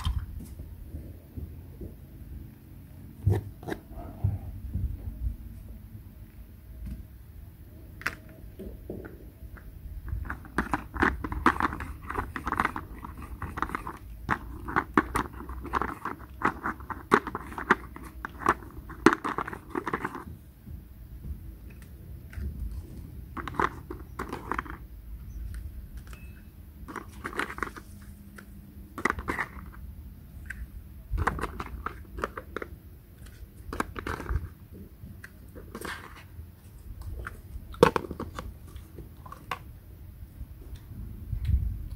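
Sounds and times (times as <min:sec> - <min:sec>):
hard plastic toys clattering: 0:10.1 - 0:20.3, 0:22.3 - 0:24.9, 0:26.1 - 0:28.0, 0:28.9 - 0:29.8, 0:31.1 - 0:34.8, 0:37.1 - 0:39.7.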